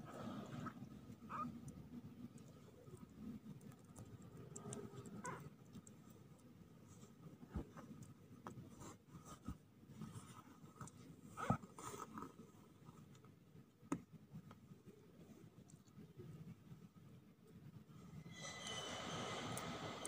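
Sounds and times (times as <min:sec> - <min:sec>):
kittens scratching on cloth: 0:06.8 - 0:13.2.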